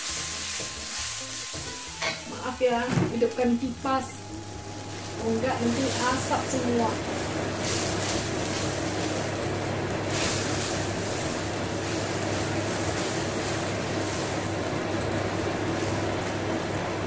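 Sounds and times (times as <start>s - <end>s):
kitchen fan humming: 0.0s - 17.0s
spice paste sizzling in oil: 0.0s - 17.0s.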